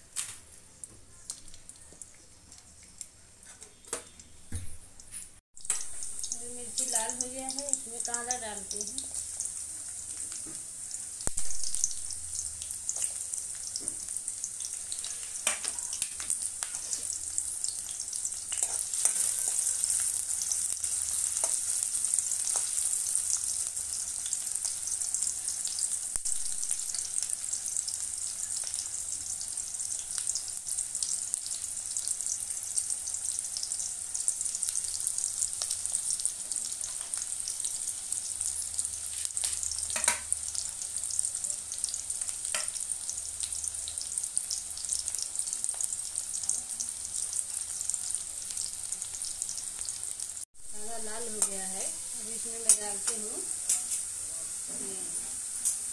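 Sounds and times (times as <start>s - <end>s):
onions frying in hot oil: 0.2s - 4.6s, 5.6s - 55.9s.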